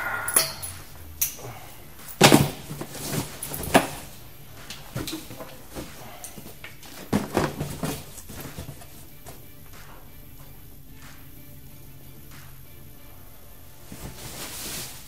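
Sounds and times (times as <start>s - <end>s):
belongings dropped into cardboard boxes: 2.0s - 10.1s.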